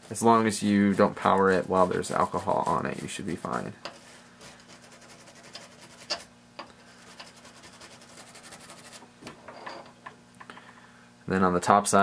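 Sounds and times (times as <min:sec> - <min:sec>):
toothbrush scrubbing circuit board: 0:00.0 - 0:06.3, 0:06.9 - 0:09.0.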